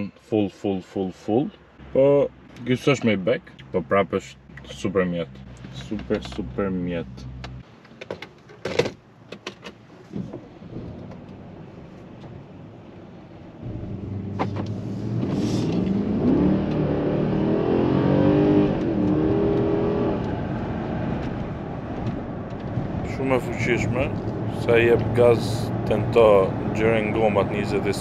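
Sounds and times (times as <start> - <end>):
tyre and road noise: 1.6 - 28.0
car engine accelerating hard: 13.6 - 28.0.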